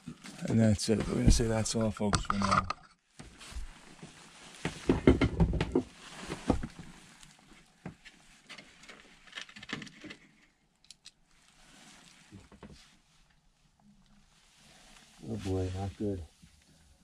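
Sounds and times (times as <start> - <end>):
rustling: 3.3 - 5.0, 5.8 - 10.6, 11.3 - 17.0
knocks and clatter: 4.7 - 5.9.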